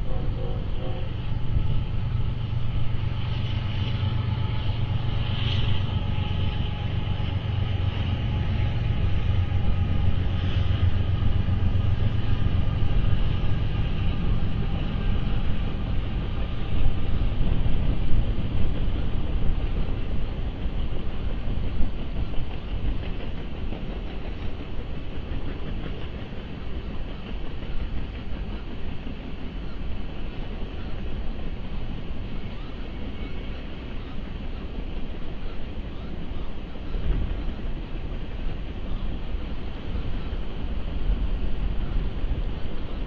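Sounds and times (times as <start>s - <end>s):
train rumbling past: 0.0s - 43.0s.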